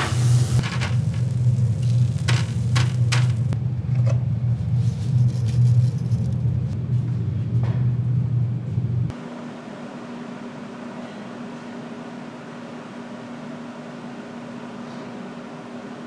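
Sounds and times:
low rumbling equipment hum: 0:00.0 - 0:16.0.

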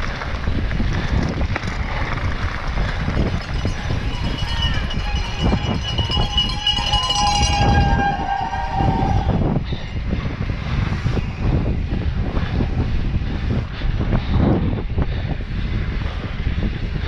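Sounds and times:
wind buffeting microphone: 0:00.0 - 0:17.0
loud held horn-like tone: 0:04.1 - 0:09.5.

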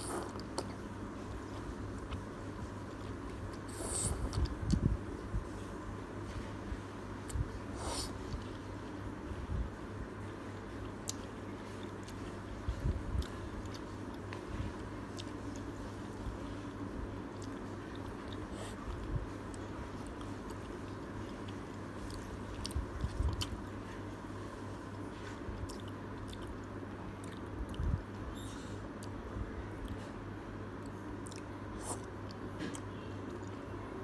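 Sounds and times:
chewing noodles: 0:00.0 - 0:05.6, 0:10.6 - 0:28.2, 0:29.8 - 0:33.6
low steady hum: 0:00.0 - 0:34.0.

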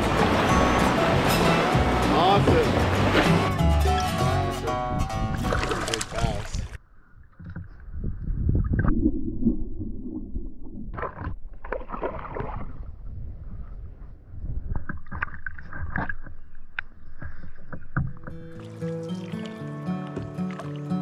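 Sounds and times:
river water sloshing and gurgling: 0:00.0 - 0:06.8, 0:10.9 - 0:13.0, 0:17.2 - 0:21.0
water splashing: 0:00.0 - 0:06.8, 0:08.6 - 0:13.0, 0:14.8 - 0:21.0.

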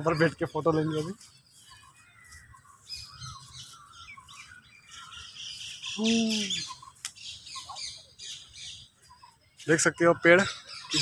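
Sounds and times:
songbirds chirping: 0:00.0 - 0:11.0
person voicing brief sound: 0:06.0 - 0:06.6.

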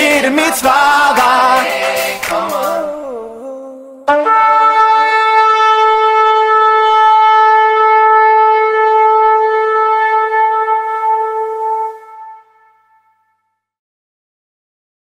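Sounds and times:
shofars blowing long blast: 0:04.1 - 0:13.0.

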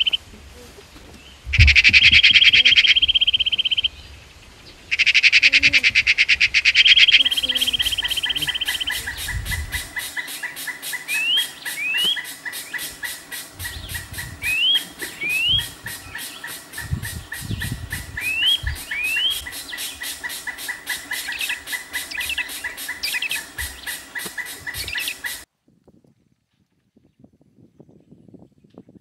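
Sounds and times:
insects chirping: 0:00.0 - 0:00.5, 0:01.4 - 0:25.5
bird whistling rising note: 0:01.5 - 0:03.8, 0:06.8 - 0:25.4
low rumbles: 0:05.7 - 0:10.0, 0:12.9 - 0:20.2.

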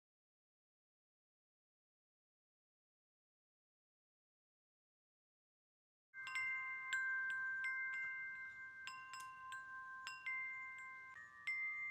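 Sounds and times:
chimes ringing: 0:06.2 - 0:11.9.

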